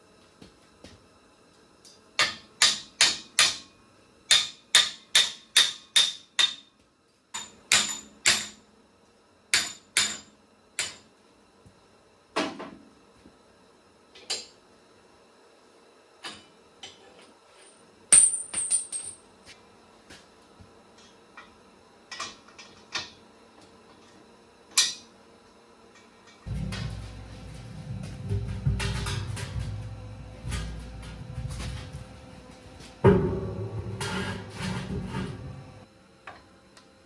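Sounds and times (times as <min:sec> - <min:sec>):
hammer striking steel: 0:04.3 - 0:06.7, 0:33.0 - 0:35.2.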